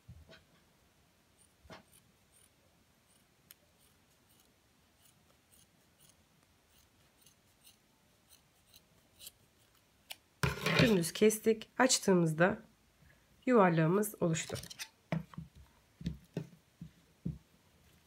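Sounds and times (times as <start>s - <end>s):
scissors snipping fabric: 1.4s - 10.2s.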